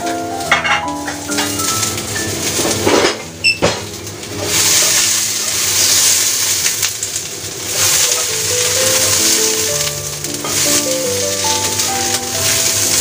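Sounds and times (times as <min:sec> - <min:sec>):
background music: 0:00.0 - 0:04.0, 0:08.3 - 0:13.0
vegetables sizzling in a wok: 0:00.0 - 0:13.0.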